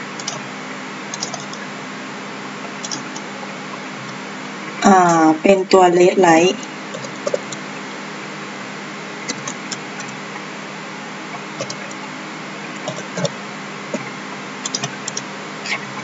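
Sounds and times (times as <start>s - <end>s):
steady hum and hiss: 0.0s - 16.0s
keyboard keystrokes: 1.1s - 1.6s, 14.6s - 15.2s.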